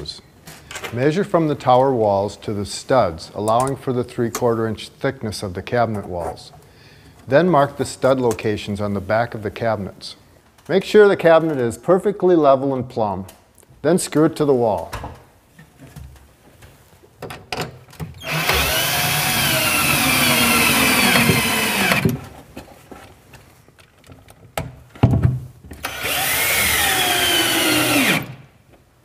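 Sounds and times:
cordless drill driving screws: 0:18.2 - 0:22.2, 0:25.8 - 0:28.4.

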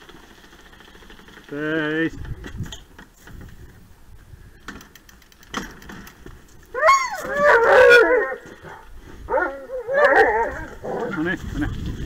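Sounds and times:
dogs howling and yelping: 0:06.7 - 0:11.2.

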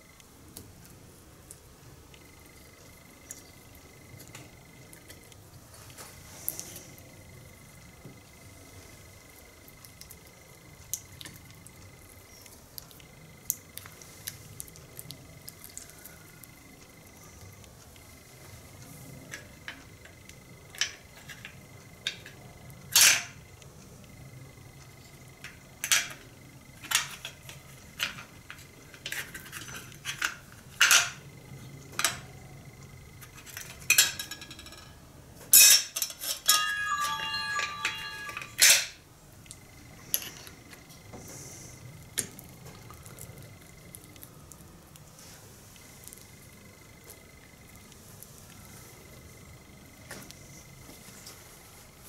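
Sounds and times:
metal ringing: 0:35.6 - 0:38.9
metal tools clinking on workbench: 0:35.6 - 0:39.0.

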